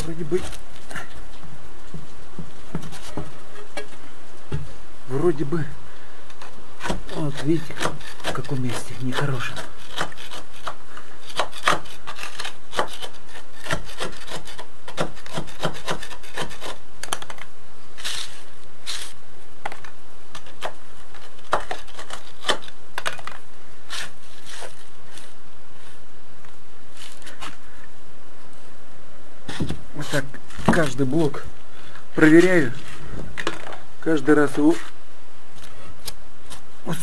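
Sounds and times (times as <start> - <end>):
hand sweeping grit: 18.0 - 19.2.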